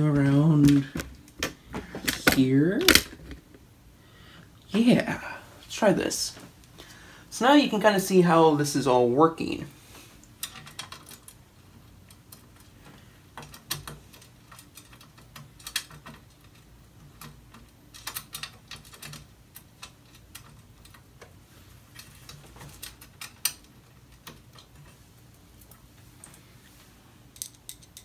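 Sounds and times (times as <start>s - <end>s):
small clicks of metal handling: 27.4s - 28.0s.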